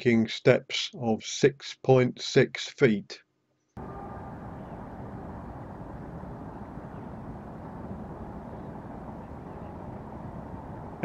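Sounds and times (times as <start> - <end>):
low outdoor background rumble: 3.8 - 11.0.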